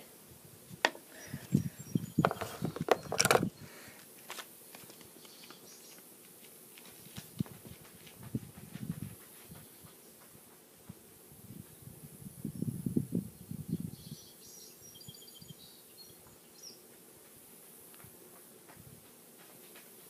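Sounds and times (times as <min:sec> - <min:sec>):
faint outdoor ambience: 0:00.0 - 0:20.0
sharp clicks and knocks: 0:02.2 - 0:03.5
small ticks: 0:16.9 - 0:20.0.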